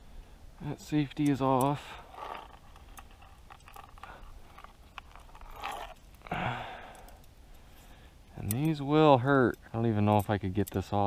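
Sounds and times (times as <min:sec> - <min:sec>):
small metal clicks: 0:01.1 - 0:07.6, 0:08.4 - 0:08.8, 0:09.5 - 0:11.0
short breathy grunt: 0:06.3 - 0:07.1.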